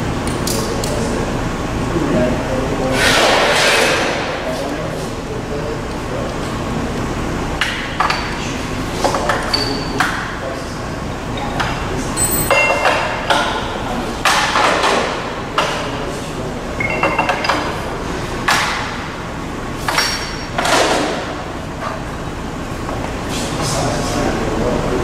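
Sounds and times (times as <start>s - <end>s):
sheet metal clanking and ringing: 12.2s - 13.6s, 19.9s - 20.7s.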